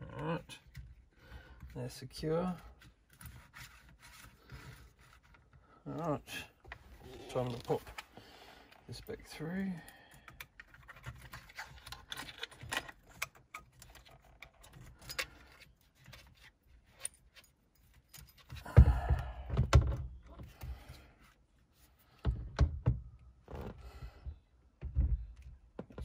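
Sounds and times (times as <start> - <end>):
heavy knocks and thuds: 18.7 - 20.0.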